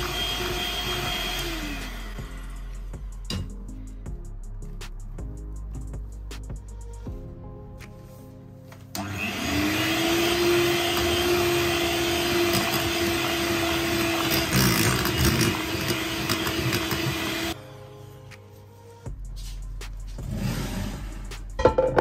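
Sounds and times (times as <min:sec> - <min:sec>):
electric hand mixer whisking: 0:00.0 - 0:02.6, 0:09.0 - 0:17.6.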